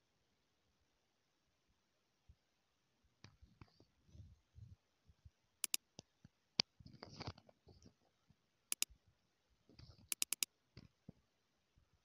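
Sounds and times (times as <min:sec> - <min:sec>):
computer mouse clicking: 0:10.1 - 0:10.5.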